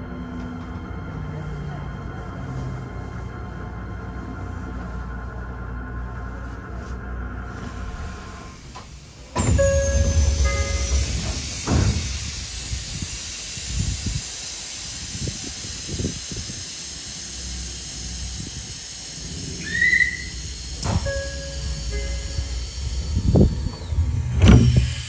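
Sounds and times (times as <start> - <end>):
train low rumble: 0.0 - 25.0
short rising whistle: 19.5 - 24.0.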